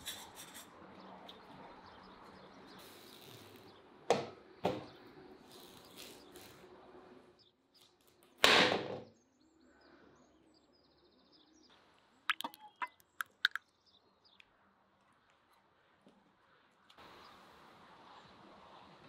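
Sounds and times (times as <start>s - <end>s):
faint bird chirps: 12.3s - 14.4s.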